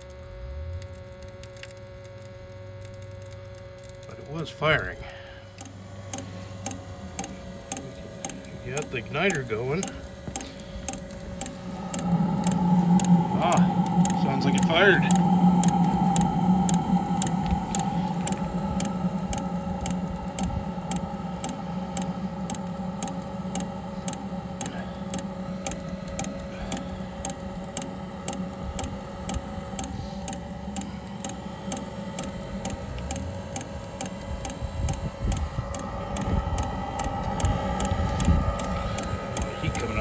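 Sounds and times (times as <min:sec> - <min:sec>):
combustion blower whirring: 0:00.0 - 0:40.0
fuel pump ticking: 0:05.0 - 0:40.0.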